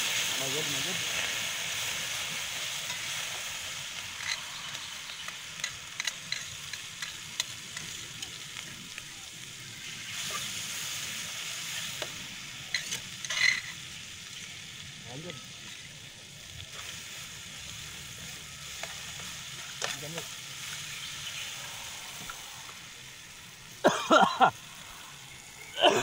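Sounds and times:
paste sizzling in hot oil: 0:00.0 - 0:26.0
metal spatula scraping a wok: 0:12.8 - 0:13.8.

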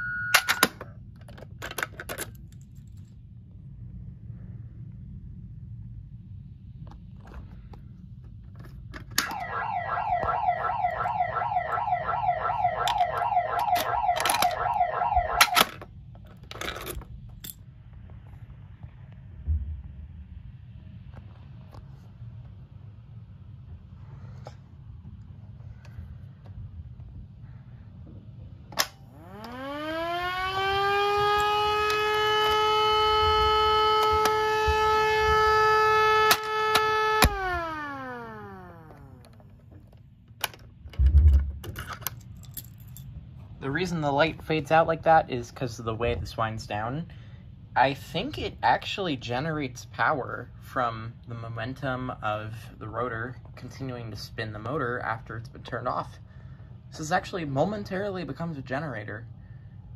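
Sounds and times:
electronic siren wailing: 0:00.0 - 0:00.7, 0:09.2 - 0:15.7, 0:29.0 - 0:39.4.

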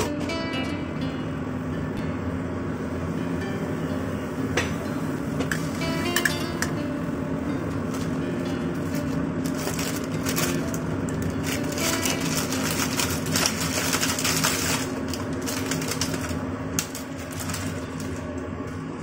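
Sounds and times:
steady low hum: 0:00.0 - 0:19.0
plastic packaging crinkling: 0:08.8 - 0:18.4.

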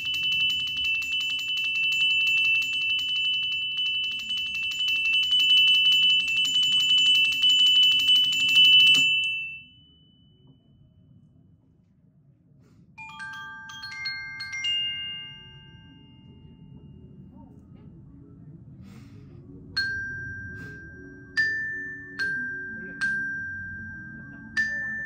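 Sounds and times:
glockenspiel notes ringing: 0:00.0 - 0:10.6, 0:13.0 - 0:16.8, 0:19.8 - 0:25.0.

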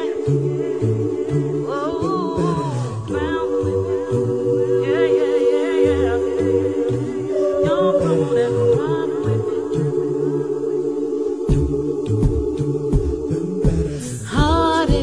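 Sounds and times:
backing voices holding chord: 0:00.0 - 0:15.0
lead voice singing with vibrato: 0:00.0 - 0:15.0
bass voice singing: 0:11.5 - 0:15.0.

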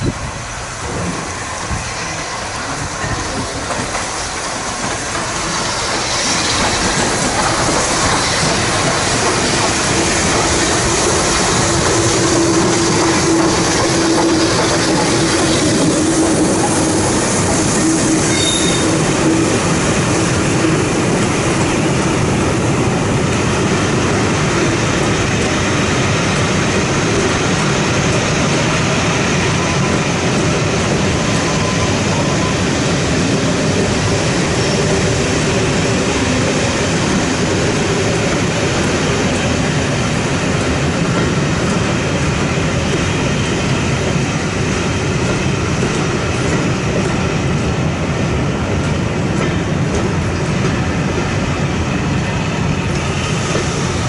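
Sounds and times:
train wheels on rails: 0:00.0 - 0:54.0
wheels squealing: 0:17.6 - 0:19.1.

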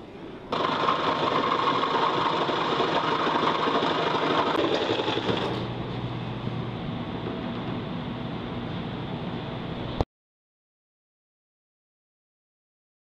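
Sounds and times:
jigsaw cutting plywood: 0:00.6 - 0:05.6.

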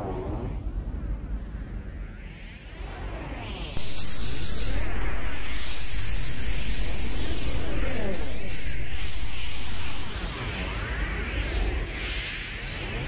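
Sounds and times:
spray paint can hissing: 0:03.8 - 0:10.2.

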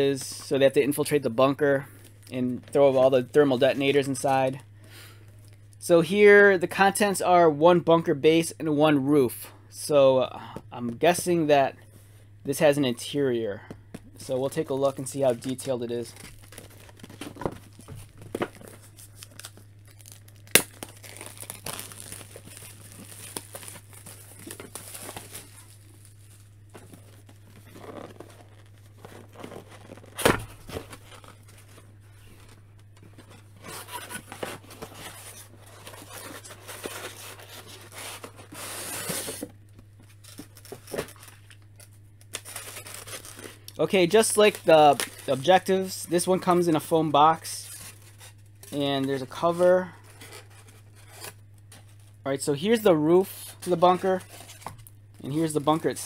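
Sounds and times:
low steady hum: 0:00.0 - 0:56.0
plastic wrap tearing and crumpling: 0:14.5 - 0:31.8, 0:40.2 - 0:45.9.

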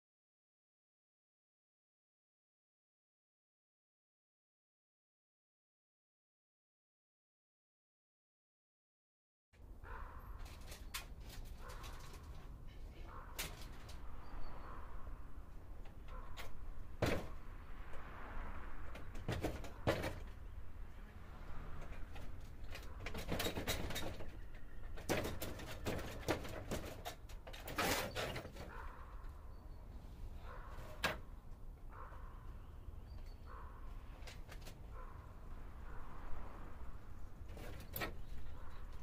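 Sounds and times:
wooden gate rattling: 0:19.0 - 0:20.5, 0:21.8 - 0:29.0.

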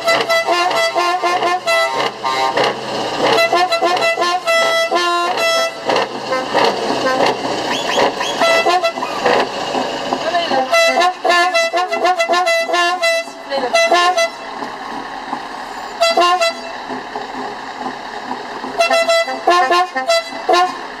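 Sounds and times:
musical air horn: 0:00.0 - 0:09.5, 0:10.5 - 0:14.6, 0:15.9 - 0:16.9, 0:18.8 - 0:21.0
truck engine running: 0:00.0 - 0:21.0.

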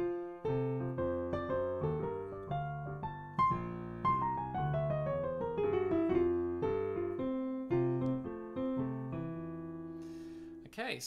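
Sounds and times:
jazz piano chords and runs: 0:00.0 - 0:10.7.

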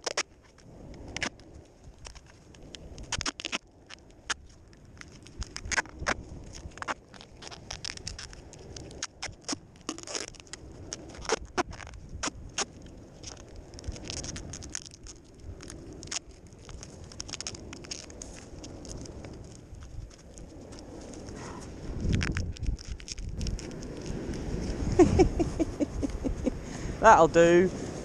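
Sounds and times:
duct tape crackling: 0:00.0 - 0:26.4.

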